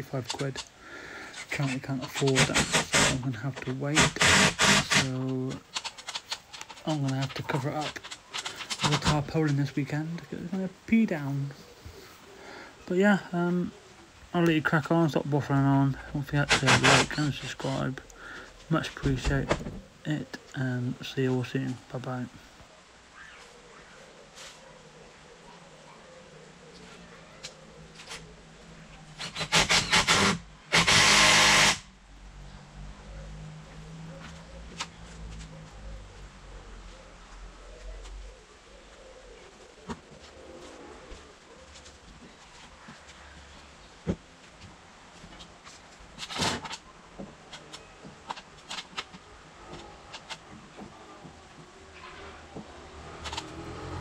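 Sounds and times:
cordless drill driving screw: 0:02.1 - 0:03.2, 0:04.0 - 0:05.1, 0:16.5 - 0:17.2, 0:29.2 - 0:31.8.

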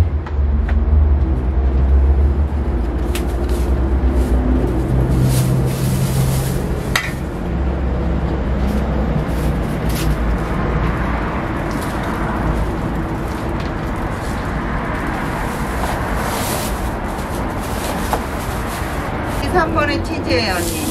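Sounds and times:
plastic and paper rustling: 0:02.9 - 0:07.3, 0:08.6 - 0:20.9.

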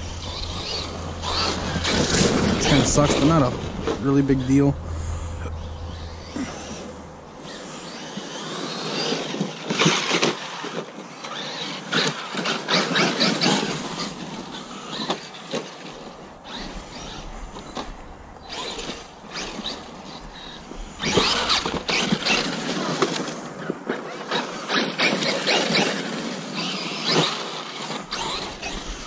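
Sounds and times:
truck crunching and knocking: 0:00.0 - 0:07.7, 0:16.5 - 0:24.2
electric motor whining: 0:00.0 - 0:29.0
tyres scrabbling on dirt: 0:00.0 - 0:29.0.

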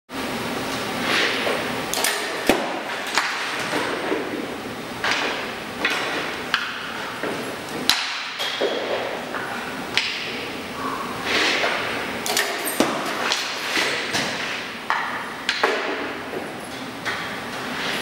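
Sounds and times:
pucks and pads knocking: 0:02.5 - 0:10.3, 0:12.8 - 0:16.5
skate blades scraping on ice: 0:11.2 - 0:11.9.

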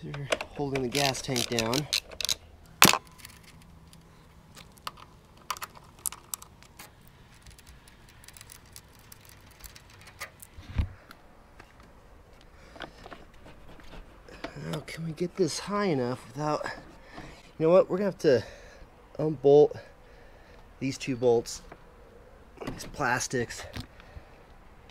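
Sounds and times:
metal bolts and washers clicking: 0:00.0 - 0:10.5.

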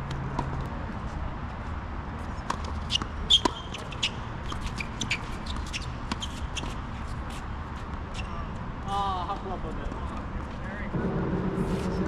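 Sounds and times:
shoes squeaking on court: 0:02.2 - 0:08.6.

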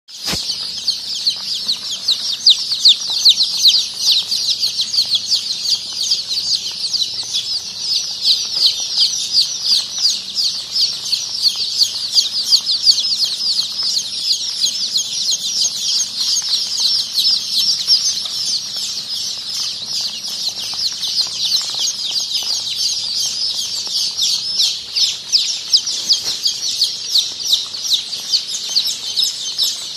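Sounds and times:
chicks peeping: 0:00.1 - 0:29.9.

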